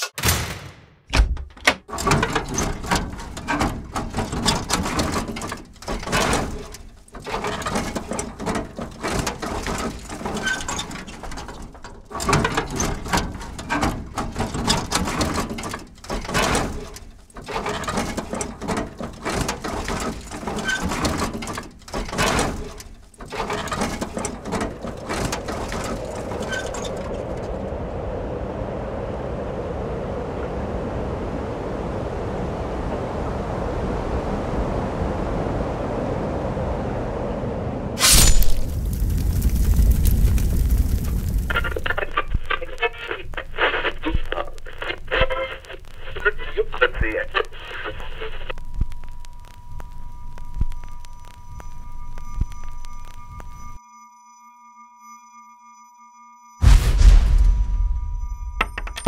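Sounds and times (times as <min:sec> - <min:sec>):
irregular clattering and knocking: 0:00.0 - 0:27.6, 0:58.2 - 0:59.0.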